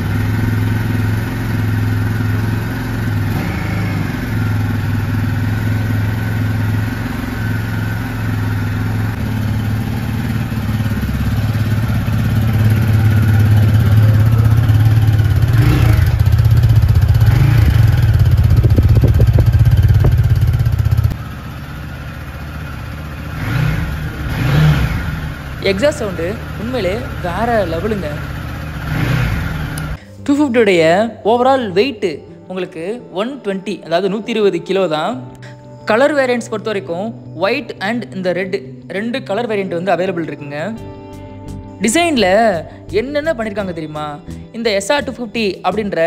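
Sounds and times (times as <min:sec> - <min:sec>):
motorcycle engine idling and revving: 0:00.0 - 0:30.2.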